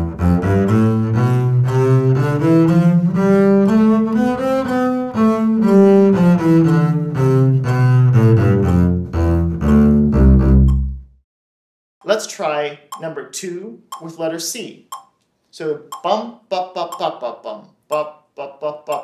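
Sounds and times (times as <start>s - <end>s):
bowed double bass scale: 0.0s - 11.2s.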